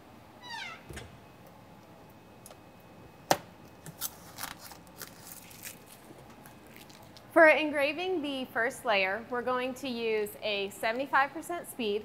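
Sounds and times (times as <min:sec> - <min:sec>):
paper peeling and crinkling: 0:03.8 - 0:07.2.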